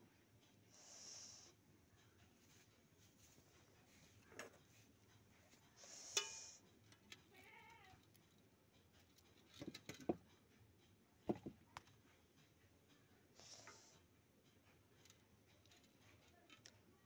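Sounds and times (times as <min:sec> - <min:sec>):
cooking pots knocking and clinking: 0:11.2 - 0:11.7.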